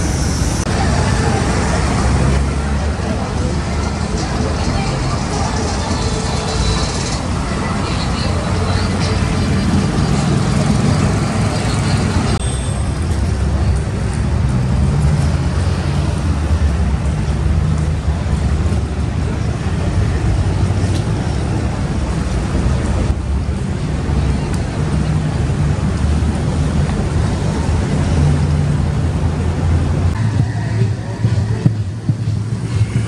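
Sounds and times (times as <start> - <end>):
road traffic rumble: 0.0 - 33.0.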